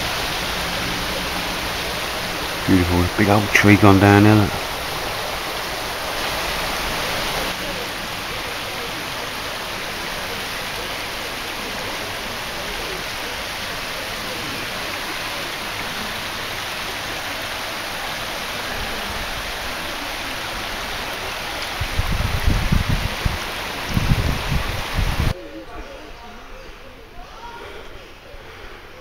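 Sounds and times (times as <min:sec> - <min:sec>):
stream water rushing: 0:00.0 - 0:25.4
wind buffeting microphone: 0:21.7 - 0:25.4.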